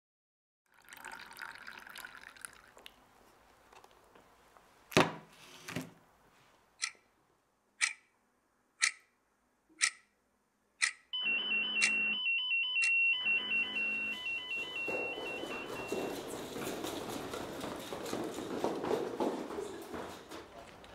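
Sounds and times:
wall clock ticking: 0:06.8 - 0:07.0, 0:07.8 - 0:08.2, 0:08.8 - 0:10.2, 0:10.8 - 0:12.1
electronic alarm beeping warble: 0:11.1 - 0:16.3
clatter of hurried movement: 0:14.8 - 0:20.9.

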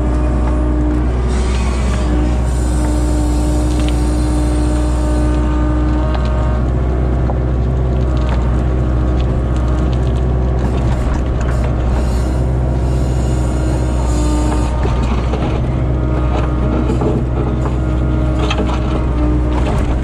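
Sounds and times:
excavator diesel engine running: 0:00.0 - 0:20.0
steady whine: 0:00.0 - 0:20.0
soil and stones clattering: 0:14.1 - 0:20.0.

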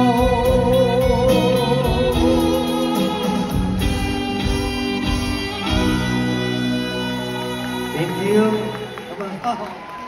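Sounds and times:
live band with violins and guitar: 0:00.0 - 0:10.0.

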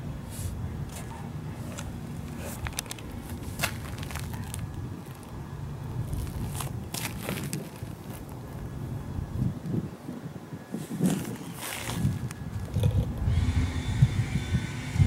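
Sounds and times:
low steady rumble: 0:00.0 - 0:15.0
camera handling clicks and crackles: 0:00.9 - 0:05.3.

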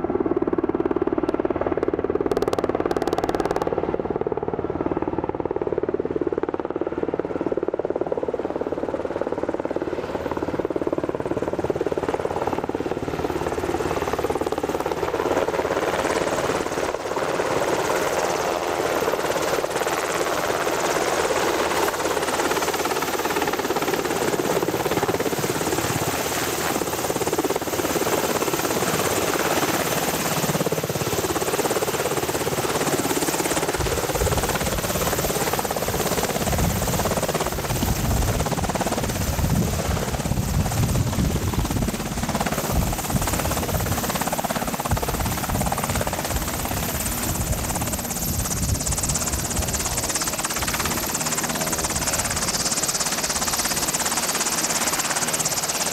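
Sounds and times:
helicopter turbine engines and rotor: 0:00.0 - 0:55.9.

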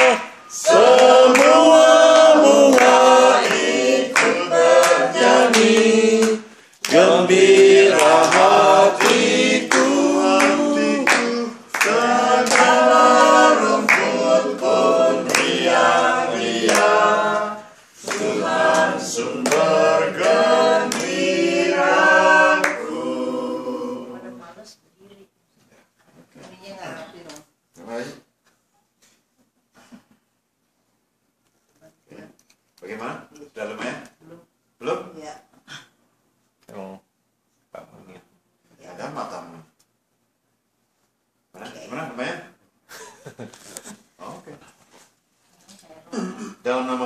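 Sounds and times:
group singing unaccompanied: 0:00.0 - 0:24.6, 0:46.7 - 0:47.0.

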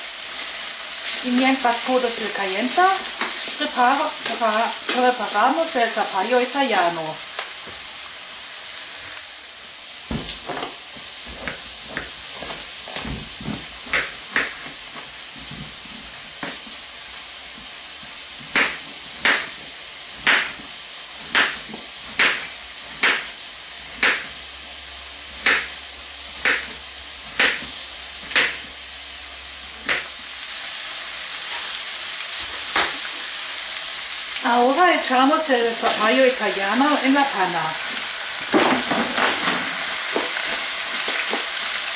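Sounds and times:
vegetables sizzling in hot oil: 0:00.0 - 0:41.9
knife chopping on cutting board: 0:10.1 - 0:15.1, 0:18.4 - 0:24.4, 0:25.3 - 0:25.8, 0:26.4 - 0:28.8, 0:29.8 - 0:30.2.

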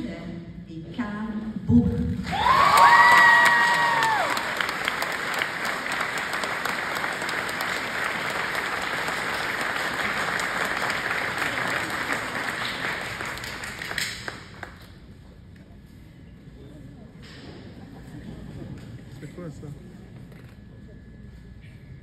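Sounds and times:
audience applauding: 0:02.3 - 0:14.8.

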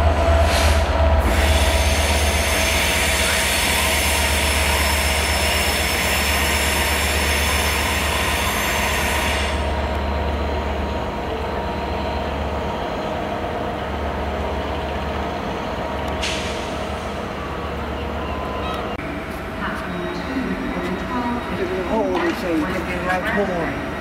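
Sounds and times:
wheels hissing on rails: 0:00.0 - 0:18.2
diesel train drone: 0:00.0 - 0:24.0.

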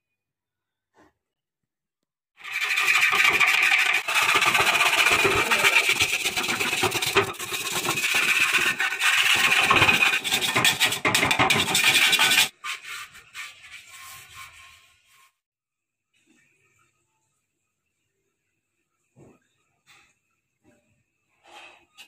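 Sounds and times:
metal scraper scraping steel: 0:02.4 - 0:12.5.

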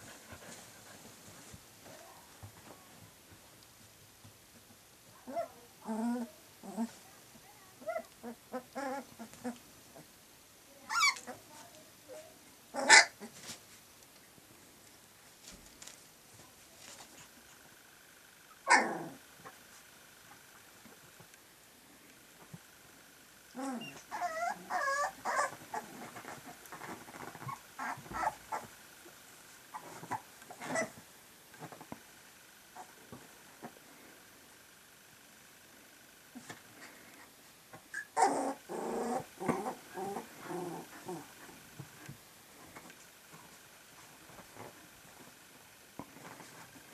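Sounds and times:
puppies whining and yelping: 0:23.6 - 0:26.0, 0:27.4 - 0:28.7, 0:37.9 - 0:40.2.

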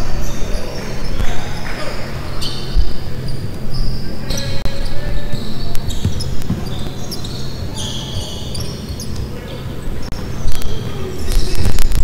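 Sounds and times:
sneakers squeaking on floor: 0:00.2 - 0:11.5
basketball bouncing: 0:05.3 - 0:07.4.

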